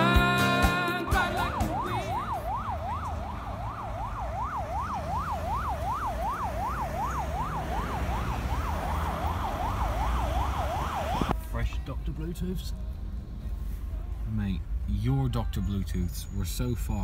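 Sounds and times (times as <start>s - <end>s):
siren yelping: 0.9s - 11.3s
traffic rumble: 1.0s - 17.0s.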